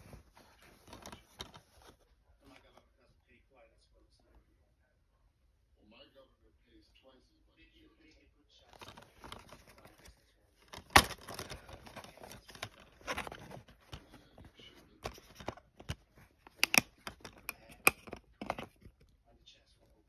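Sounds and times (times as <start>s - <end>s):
rustling: 0.0s - 2.8s, 8.6s - 19.2s
plastic case snapping open: 8.8s - 9.9s, 10.6s - 19.0s.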